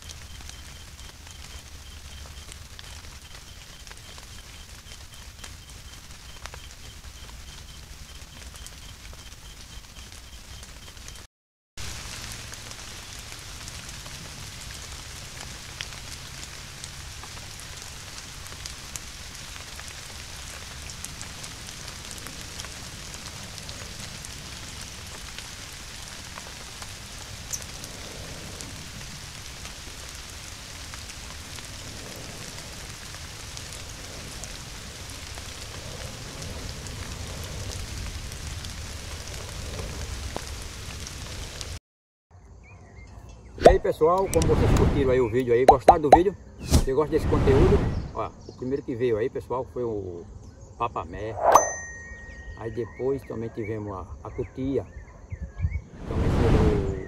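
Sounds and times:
rain falling on leaves: 0.0s - 41.8s.

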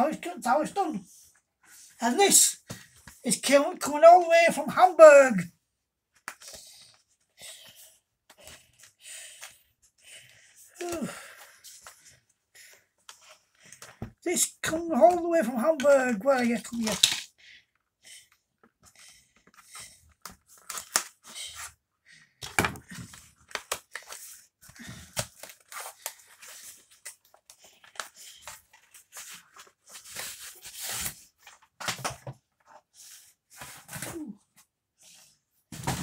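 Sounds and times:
cardboard tearing: 20.5s - 21.2s, 29.9s - 31.3s.

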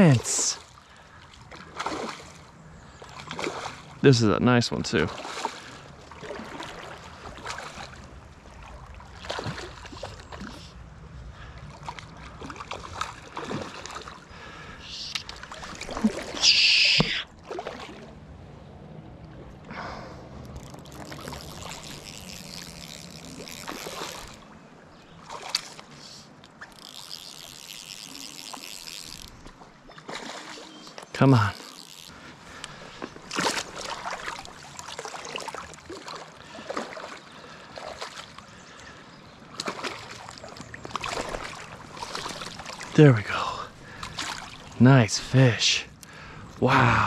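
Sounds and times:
water splashing and trickling: 0.0s - 47.0s
sharp splash: 15.3s - 18.1s, 39.6s - 43.0s.

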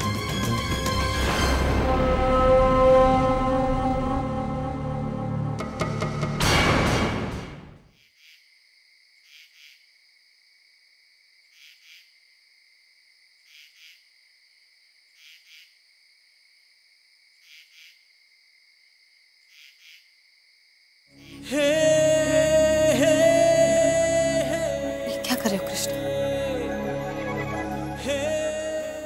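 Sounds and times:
loud music: 0.0s - 7.7s, 21.2s - 29.0s
crickets chirping: 8.0s - 29.0s.

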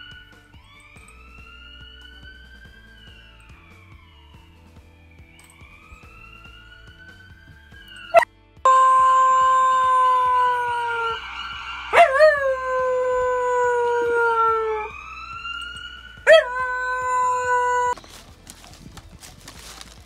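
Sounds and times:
ambulance siren from laptop: 0.0s - 18.9s
dog howling: 8.1s - 15.0s, 16.3s - 18.0s.

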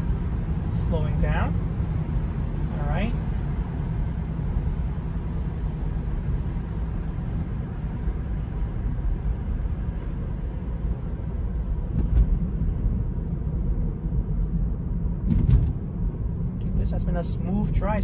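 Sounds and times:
tyre and road rumble: 0.0s - 18.0s.

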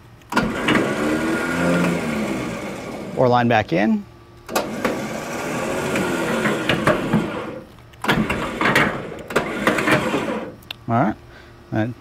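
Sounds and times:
electric winch running: 0.3s - 3.6s, 4.5s - 10.6s.

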